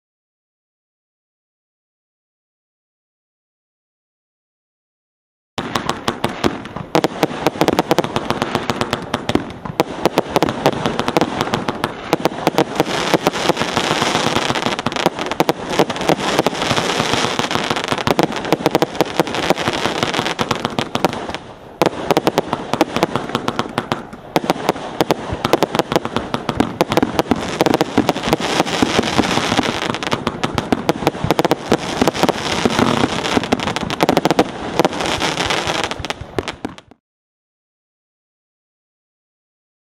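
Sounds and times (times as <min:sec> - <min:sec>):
firework cake shots and bursts: 0:05.6 - 0:37.0.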